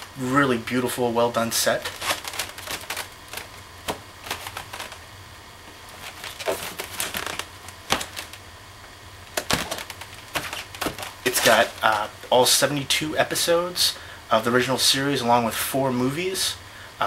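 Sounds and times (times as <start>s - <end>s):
packaging rustling: 1.4s - 5.1s, 5.7s - 8.5s, 9.3s - 12.1s
dvd case clicking: 2.0s - 5.0s, 6.0s - 8.4s, 9.4s - 11.3s
knocks on dvd case: 9.4s - 11.2s.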